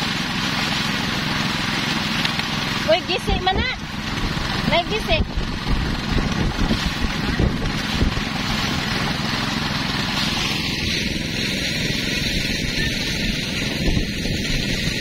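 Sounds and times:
wind buffeting microphone: 3.3 - 9.0, 12.3 - 15.0.

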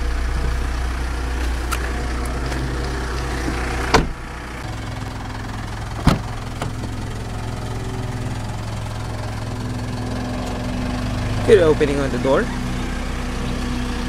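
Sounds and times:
car engine idling: 0.0 - 14.0
car door shutting: 3.4 - 4.3, 6.0 - 6.8.

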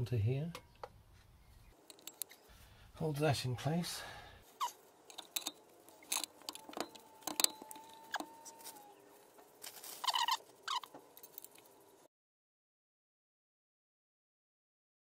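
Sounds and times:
metal part clicks and scrapes: 1.8 - 2.4, 4.6 - 8.6.

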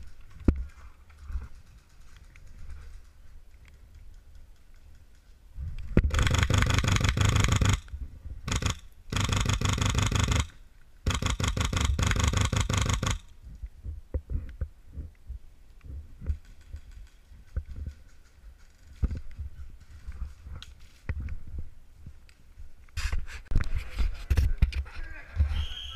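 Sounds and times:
airsoft gun firing full-auto: 6.1 - 7.9, 8.5 - 13.3.

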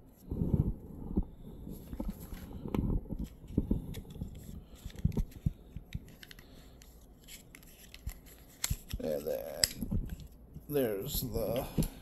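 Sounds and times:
paper rustling: 3.2 - 10.4.

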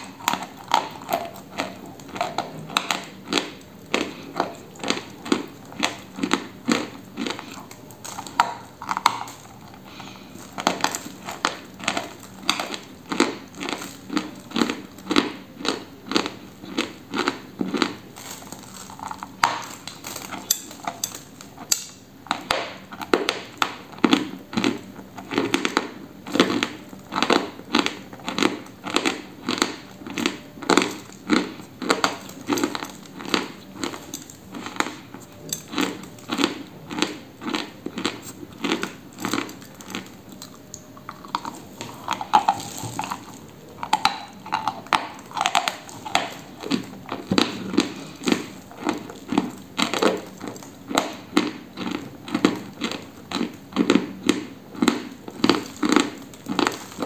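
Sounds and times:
chalk crunching in mouth: 24.0 - 57.0.

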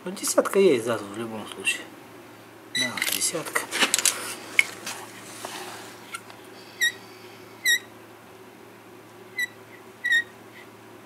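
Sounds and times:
faint steady hum: 0.0 - 11.0
high-pitched squeaks: 2.8 - 3.0, 7.6 - 7.9, 9.4 - 10.3.

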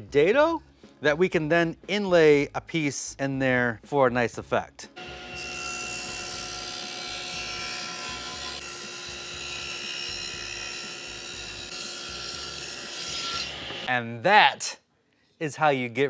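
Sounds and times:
power tool cutting wood: 5.0 - 13.9.

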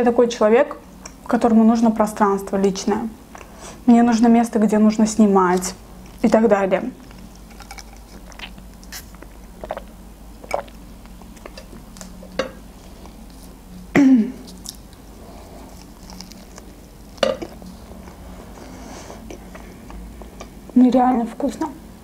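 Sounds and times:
biting into a wrap: 7.0 - 12.2, 14.4 - 18.6
wet chewing: 7.0 - 13.6, 14.4 - 20.6.

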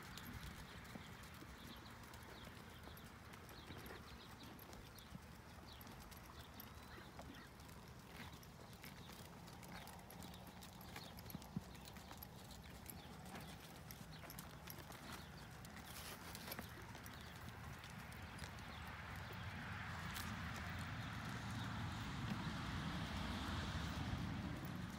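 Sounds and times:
horse hoofbeats on soft dirt: 0.0 - 24.9.

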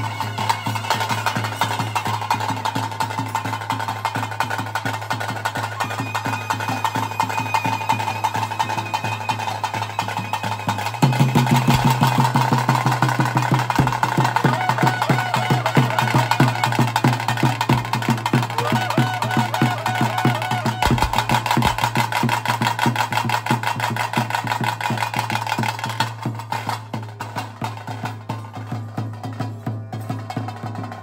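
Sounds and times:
fast drum strokes: 8.6 - 31.0.

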